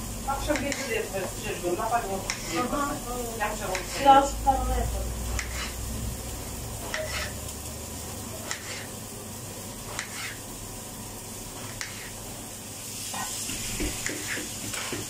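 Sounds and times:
knife cutting on cutting board: 0:06.9 - 0:07.3, 0:08.4 - 0:08.9, 0:09.9 - 0:10.4.

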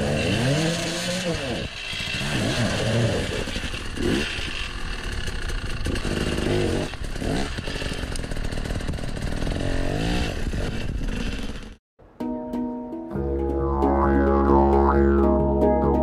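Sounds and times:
motorcycle engine revving: 0:00.0 - 0:11.8.

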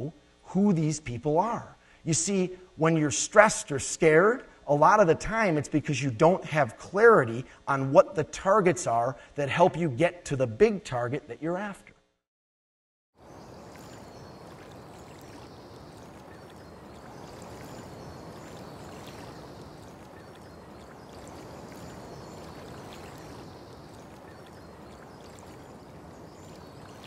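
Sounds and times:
faint high chirps: 0:13.3 - 0:27.0.

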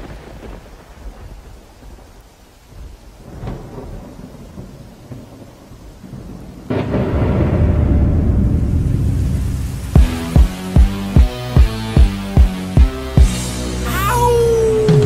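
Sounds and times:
thunder rumbling: 0:00.0 - 0:11.2
rain: 0:00.0 - 0:15.0
thunder crack: 0:03.2 - 0:11.7
loud music with deep bass: 0:10.0 - 0:15.0.

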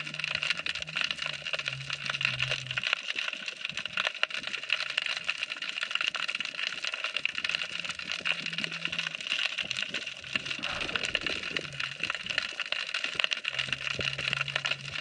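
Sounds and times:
snapping shrimp crackle: 0:00.0 - 0:15.0
low steady hum: 0:10.1 - 0:12.5.

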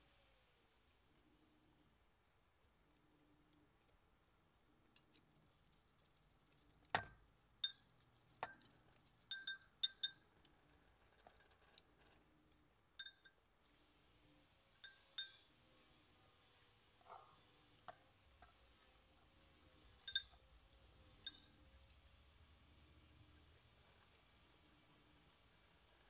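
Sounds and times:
cutlery clinking against ceramic bowl: 0:09.3 - 0:10.2, 0:17.9 - 0:18.7, 0:20.0 - 0:20.4.

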